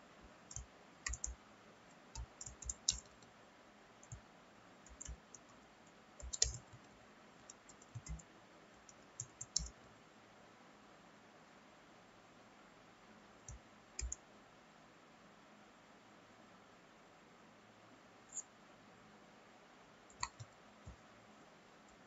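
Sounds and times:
computer keyboard typing: 0.5 - 3.3, 4.0 - 4.2, 4.8 - 5.6, 6.2 - 9.8, 13.5 - 14.2, 20.1 - 21.0.

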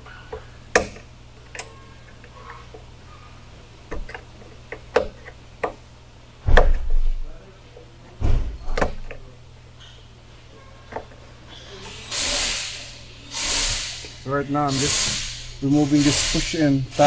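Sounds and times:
steady low hum: 0.0 - 17.0
heavy thuds: 8.2 - 8.8.

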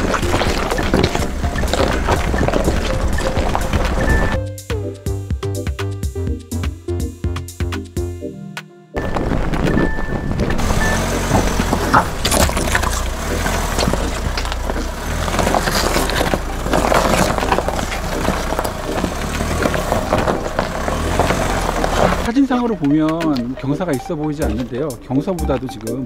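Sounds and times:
knocks and crunches from rough ground: 0.0 - 4.4, 9.0 - 23.5
diesel engine droning: 0.0 - 5.0, 9.0 - 26.0.

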